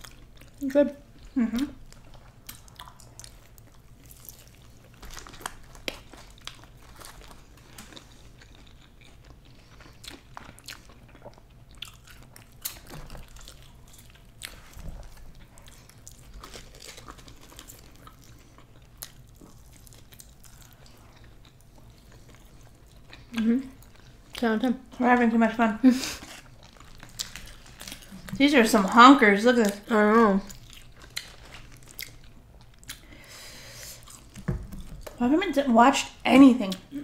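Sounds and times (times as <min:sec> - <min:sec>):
chewing and crunching: 0:00.0 - 0:25.0, 0:26.0 - 0:33.3, 0:33.9 - 0:35.2.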